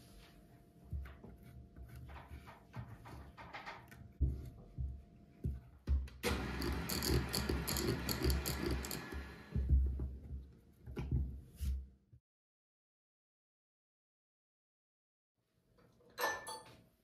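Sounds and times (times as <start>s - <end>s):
spatula knocking on mixer beaters: 5.9s - 10.4s
spatula scraping and stirring cream: 6.4s - 9.5s.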